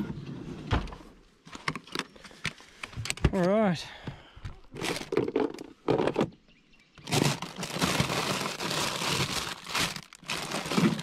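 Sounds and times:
plastic packaging rustling: 4.8 - 5.6, 7.0 - 11.0.

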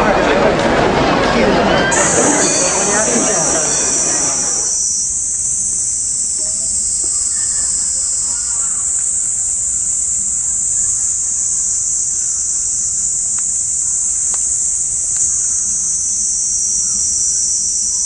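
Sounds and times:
insects singing drone: 1.7 - 18.0
faint clicks: 7.0 - 15.8.

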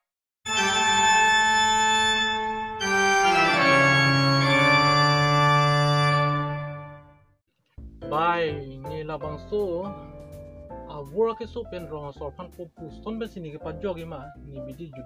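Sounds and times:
organ-like keyboard chords: 0.5 - 7.2.

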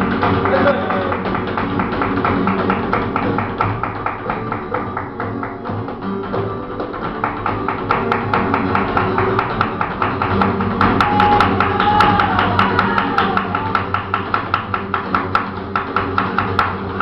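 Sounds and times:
acoustic flamenco guitar: 0.0 - 17.0
dancer's footwork taps: 0.0 - 17.0
person singing: 11.0 - 14.0.

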